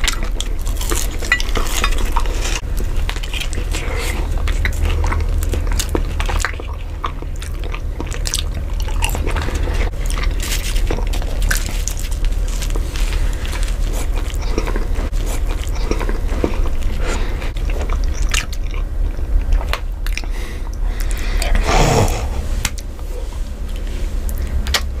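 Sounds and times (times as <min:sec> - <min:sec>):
chewing and biting food: 0:00.0 - 0:25.0
steady low hum: 0:00.0 - 0:25.0.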